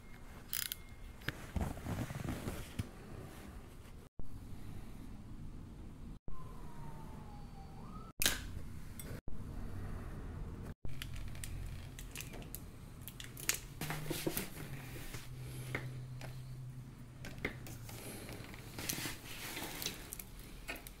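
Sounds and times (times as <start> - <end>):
fishing reel clicks and rubbing: 0.5 - 0.8.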